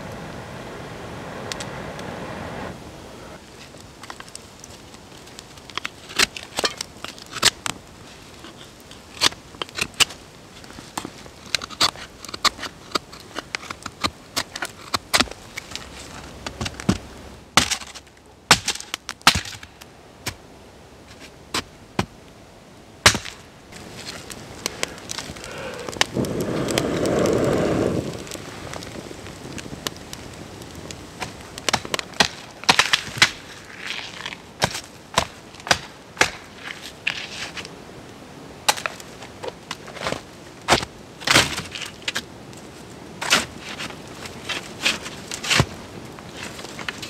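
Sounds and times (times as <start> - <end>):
rush of noise: 0.0 - 3.4, 23.8 - 29.6
campfire crackling and popping: 3.4 - 22.4, 23.0 - 47.0
knife shaving a stick: 5.2 - 16.6
branches snapping: 10.9 - 19.7, 23.0 - 37.6.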